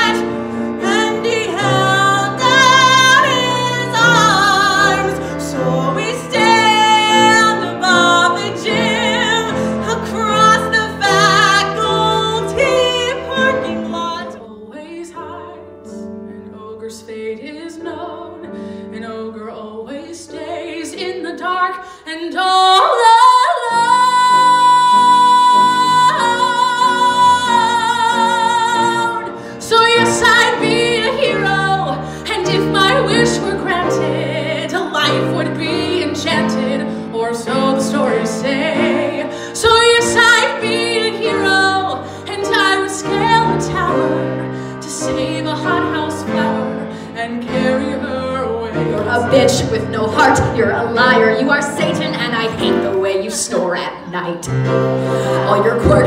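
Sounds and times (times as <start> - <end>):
grand piano accompaniment: 0.0 - 56.0
person singing: 22.1 - 53.2.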